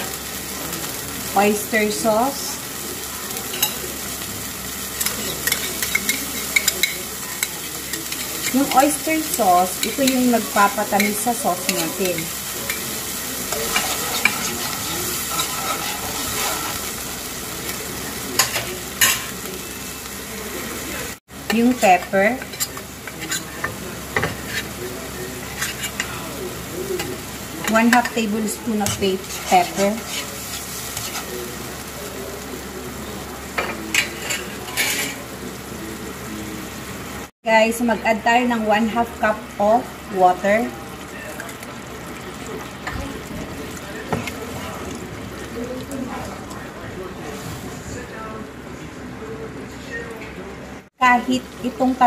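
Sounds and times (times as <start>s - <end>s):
sauce sizzling in a pan: 0.0s - 46.7s, 51.1s - 52.0s
spoon stirring: 5.0s - 16.8s, 21.5s - 24.7s, 25.5s - 26.2s, 28.8s - 31.3s.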